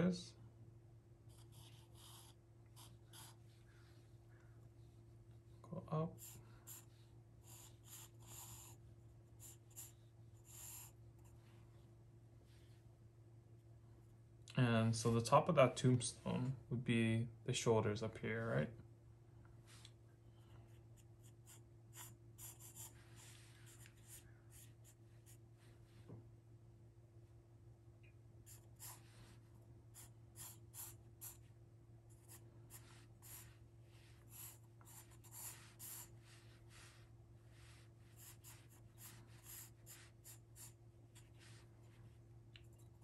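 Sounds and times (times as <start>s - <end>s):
pencil sketching on paper: 1.3s - 3.4s, 6.2s - 11.0s, 21.0s - 25.4s, 28.5s - 29.2s, 30.0s - 31.4s, 32.1s - 37.0s, 37.6s - 41.3s.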